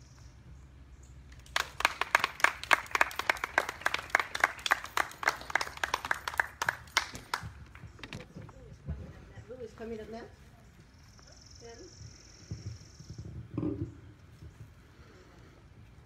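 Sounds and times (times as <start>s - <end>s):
audience applauding: 1.4s - 7.8s.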